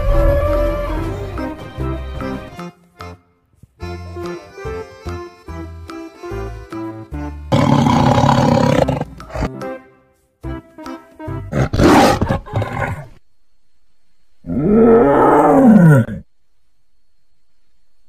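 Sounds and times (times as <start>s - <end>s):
simple tune: 0.0s - 7.6s
tiger roaring: 7.5s - 9.5s, 11.5s - 13.1s, 14.4s - 16.3s.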